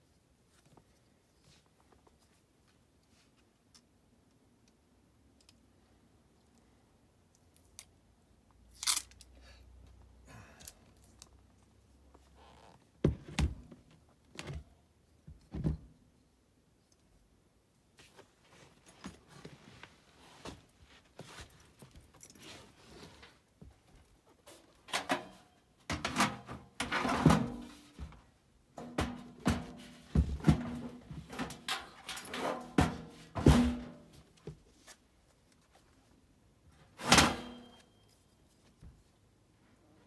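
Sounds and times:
sheet metal knocks and scrapes: 25.9 - 28.1, 28.8 - 34.1.

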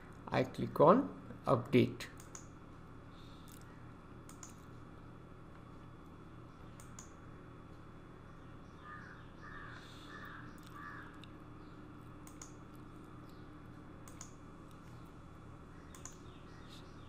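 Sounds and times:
computer mouse clicks: 2.2 - 2.5, 3.5 - 4.7, 6.8 - 7.2, 12.2 - 12.6, 14.0 - 14.8, 15.9 - 16.2
bird calling: 8.6 - 11.2.

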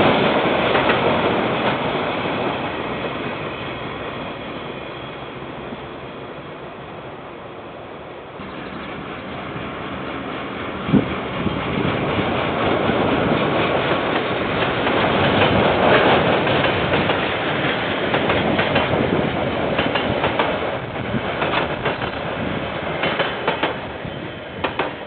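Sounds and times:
train wheels rumbling on rail: 0.0 - 25.0
wheels clacking over rail joints: 8.4 - 23.9, 24.6 - 25.0.

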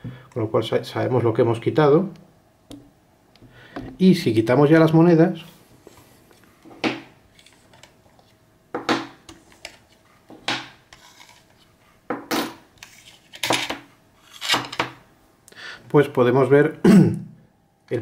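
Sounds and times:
coins scraping across glass: 14.2 - 14.7.

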